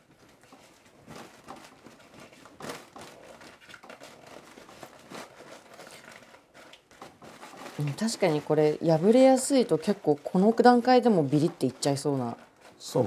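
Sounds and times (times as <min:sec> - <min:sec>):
thin paper rustling: 0:00.0 - 0:13.0.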